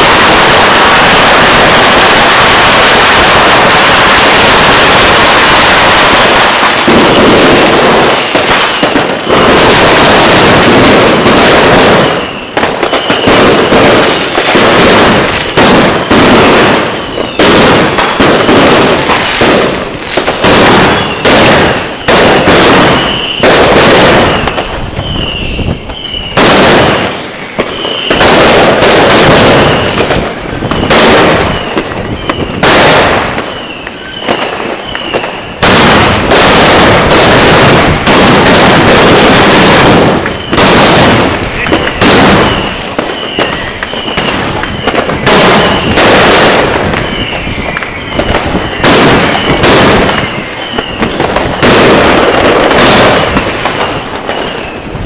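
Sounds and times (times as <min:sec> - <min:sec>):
firecracker bangs: 0:00.0 - 0:55.0
firecracker whistles: 0:00.0 - 0:55.0.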